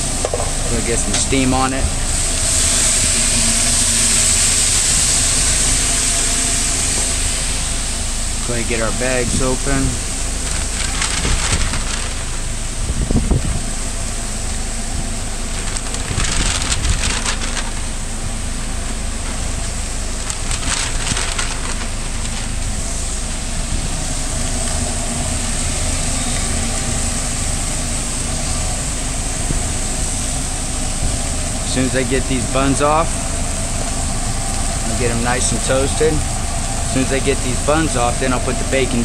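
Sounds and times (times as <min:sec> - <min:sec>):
ventilation fans droning: 0:00.0 - 0:39.0
paper bags crinkling: 0:08.8 - 0:12.7, 0:14.7 - 0:23.7, 0:31.7 - 0:39.0.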